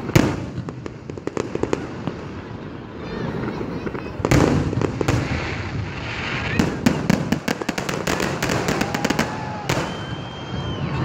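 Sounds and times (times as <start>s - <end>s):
firework pops and crackles: 0.0s - 2.4s, 3.7s - 10.6s
loud firework bang: 4.2s - 10.7s.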